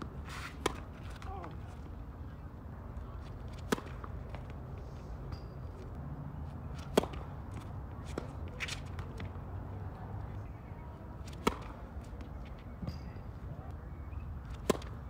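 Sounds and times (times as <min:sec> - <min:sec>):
tennis balls struck by rackets: 0:00.0 - 0:01.6, 0:03.3 - 0:04.6, 0:06.7 - 0:09.4, 0:11.2 - 0:13.2, 0:14.5 - 0:15.0.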